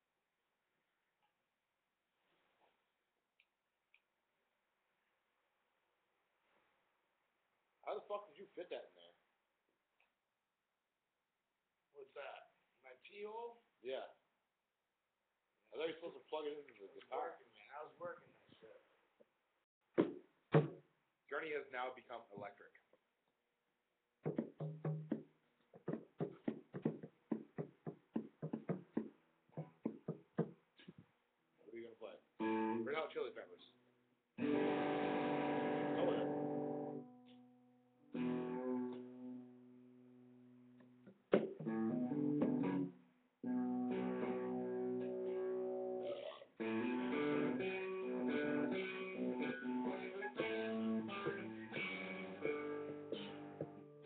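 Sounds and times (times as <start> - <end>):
hand drum beaten with palms: 20.0 - 20.8, 24.3 - 30.6
electric guitar strumming chords: 34.4 - 39.7, 41.3 - 54.0.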